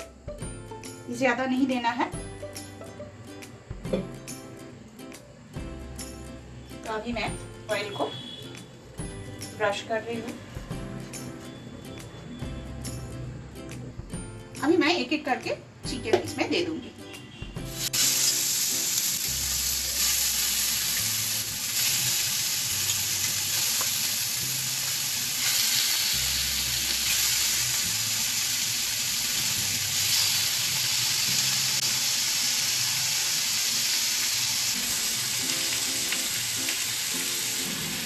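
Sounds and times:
chicken sizzling in hot oil: 0:17.6 - 0:38.0.

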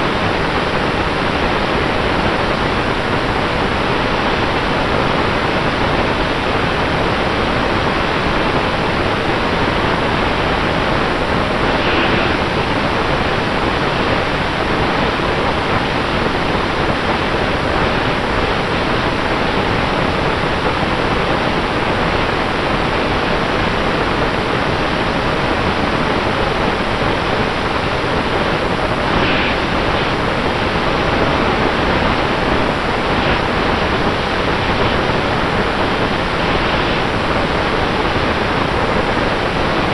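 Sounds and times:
propeller wash rushing: 0:10.5 - 0:13.8, 0:28.7 - 0:38.4.

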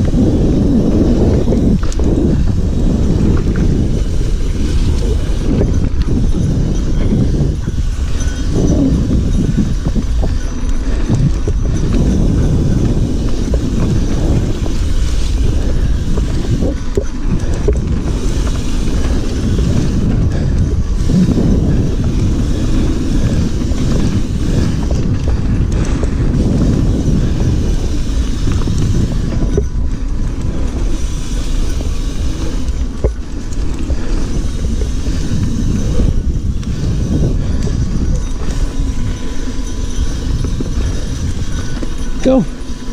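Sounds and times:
bike rattling over bumps: 0:00.0 - 0:42.9
tyres rolling on dirt: 0:00.0 - 0:42.9
wind buffeting microphone: 0:00.0 - 0:42.9.

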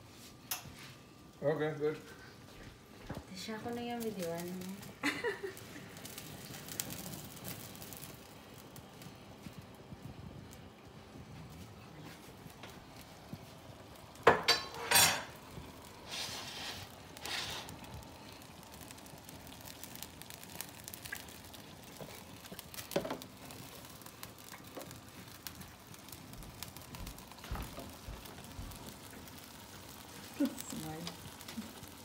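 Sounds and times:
sauce sizzling in skillet: 0:00.0 - 0:32.0
short hissing bursts: 0:16.0 - 0:17.8.

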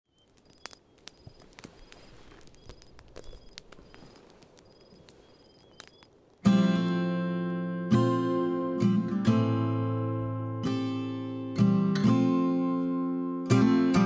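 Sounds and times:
campfire crackling and popping: 0:00.0 - 0:09.4
crickets chirping: 0:00.1 - 0:06.2
acoustic guitar chord strummed: 0:06.5 - 0:14.0.

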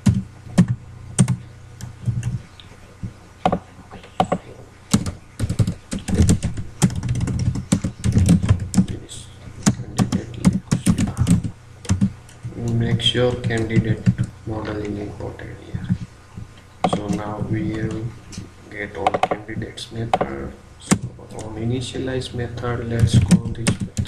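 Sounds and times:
typing on a computer keyboard: 0:00.0 - 0:02.3, 0:04.2 - 0:09.0, 0:09.6 - 0:12.1, 0:23.0 - 0:24.0.

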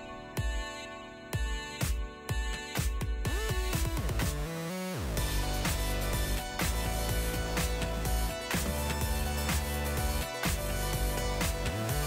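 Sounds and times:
deep kick drum: 0:01.4 - 0:04.5, 0:05.2 - 0:12.0
sustained synth chords: 0:03.3 - 0:12.0.

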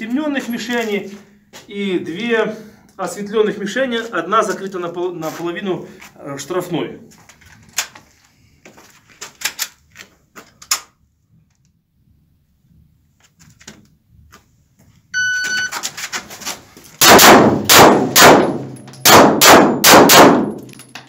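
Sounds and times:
shot timer beep: 0:15.2 - 0:15.8
pistol shots echoing: 0:17.0 - 0:20.7.

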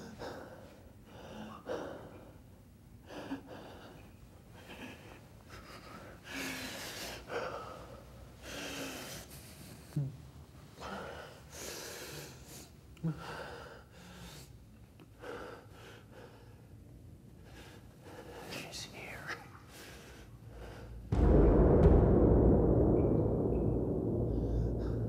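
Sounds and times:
man breathing hard: 0:10.8 - 0:18.6.

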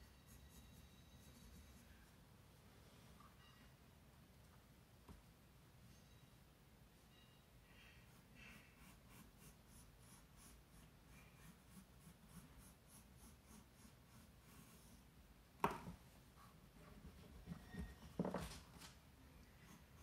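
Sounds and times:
pencil scratching on paper: 0:00.0 - 0:02.2, 0:08.0 - 0:15.1.

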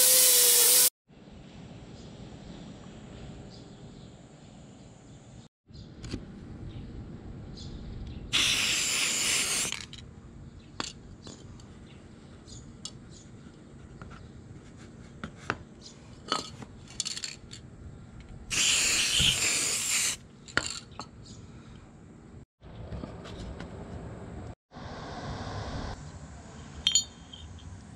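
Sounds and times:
spray paint can hissing: 0:00.0 - 0:00.9, 0:08.4 - 0:10.0, 0:18.5 - 0:20.2.

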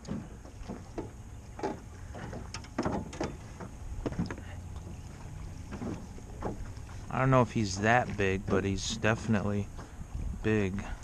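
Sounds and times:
short knocks and clicks: 0:00.0 - 0:05.0
water lapping: 0:00.0 - 0:11.0.

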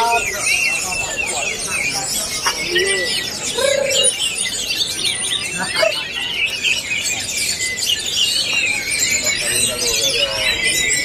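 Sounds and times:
birds singing chirps and trills: 0:00.0 - 0:11.0.

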